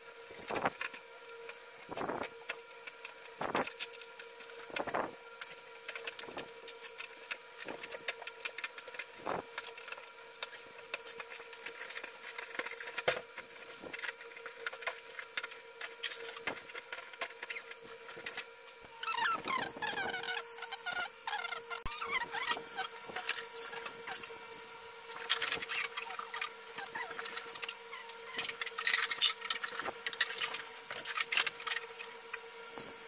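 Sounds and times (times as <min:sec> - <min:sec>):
faint steady whine: 0:00.0 - 0:33.0.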